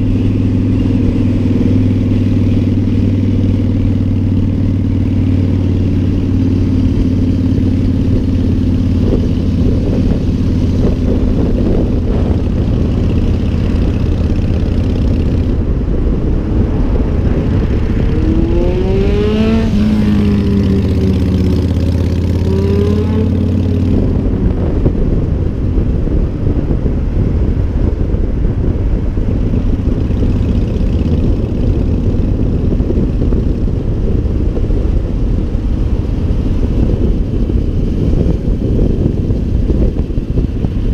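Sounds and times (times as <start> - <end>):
motorcycle engine running: 0.0 - 40.9
road rush: 0.0 - 40.9
wind rushing over microphone: 0.0 - 40.9
engine revving: 16.6 - 25.4.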